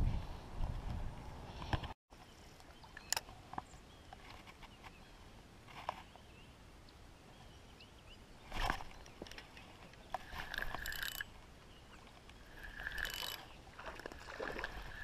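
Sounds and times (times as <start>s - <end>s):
rustle: 0.0s - 15.0s
fishing reel clicks: 10.3s - 11.2s, 12.5s - 13.5s.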